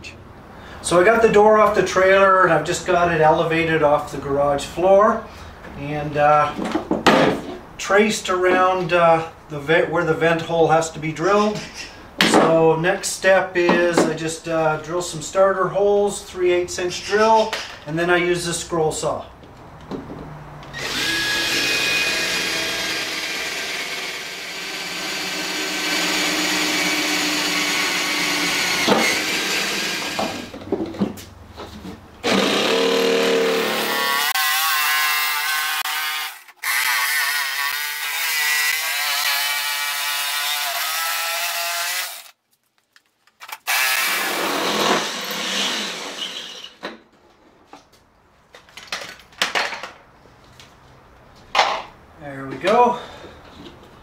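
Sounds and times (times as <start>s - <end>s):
cordless drill boring metal: 20.7s - 30.5s, 32.2s - 42.3s, 43.6s - 46.8s
jigsaw cutting: 20.7s - 30.5s, 32.2s - 42.4s, 43.6s - 46.8s.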